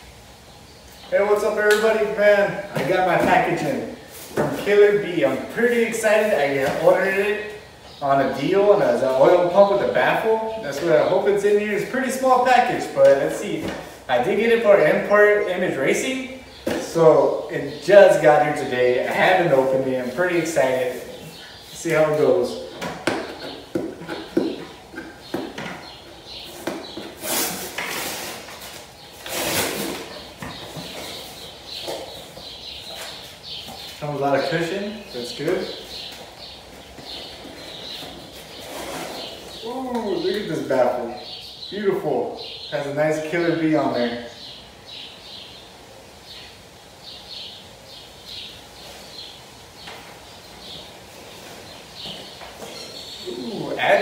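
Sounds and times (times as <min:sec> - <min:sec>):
small birds chirping: 0:00.0 - 0:54.0
packing tape ripping: 0:27.2 - 0:30.1.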